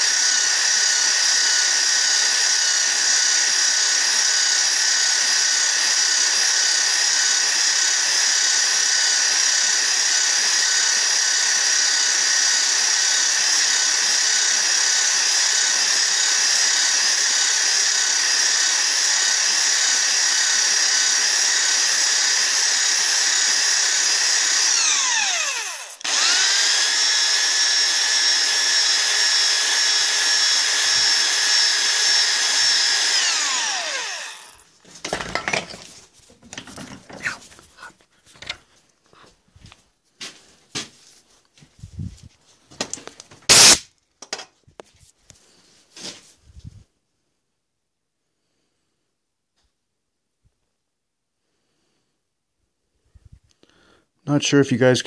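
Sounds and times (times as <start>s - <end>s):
electric drill whining: 0.0s - 34.7s, 43.0s - 43.8s.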